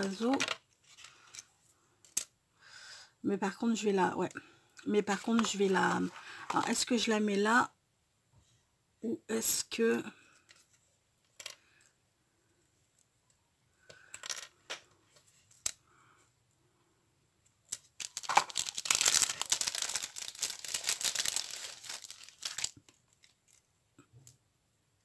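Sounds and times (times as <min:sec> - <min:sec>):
small pieces clicking down: 0:17.7 - 0:19.4
plastic packet crinkling: 0:17.8 - 0:23.6.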